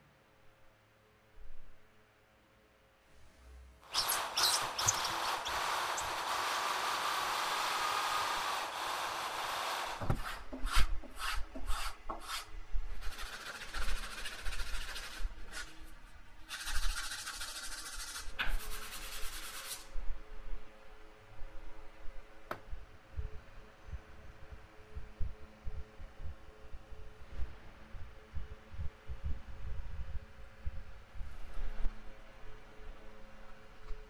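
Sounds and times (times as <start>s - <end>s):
metal scraping on abrasive paper: 3.8s - 19.9s
electric drill boring into wood: 3.9s - 10.2s.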